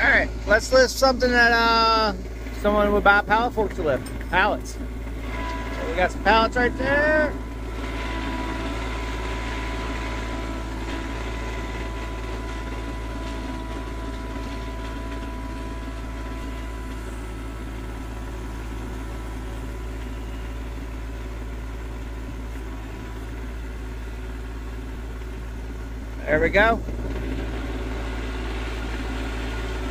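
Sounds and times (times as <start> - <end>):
tractor diesel engine running: 0.0 - 29.9
thin high whine: 3.3 - 10.9.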